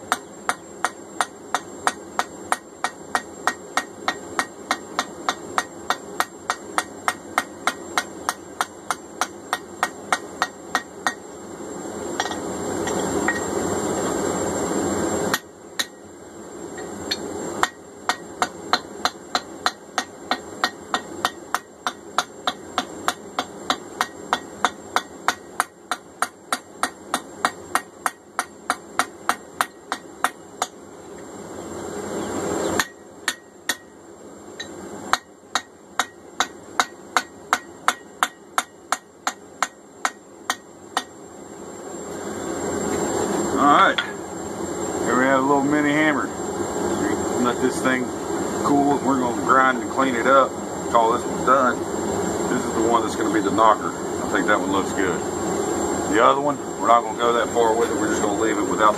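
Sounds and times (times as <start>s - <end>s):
hammer striking steel on anvil: 0.1s - 11.2s, 12.2s - 13.5s, 15.3s - 16.0s, 16.8s - 30.8s, 32.8s - 33.9s, 34.6s - 41.1s.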